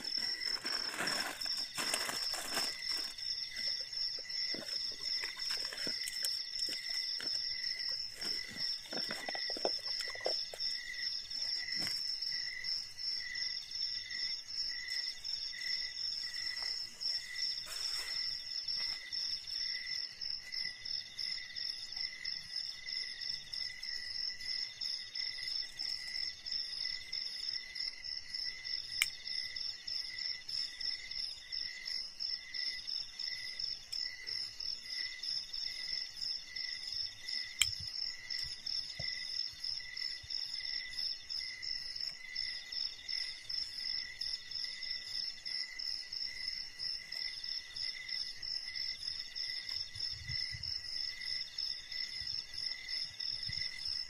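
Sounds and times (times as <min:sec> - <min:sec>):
insects trilling: 0:00.0 - 0:54.0.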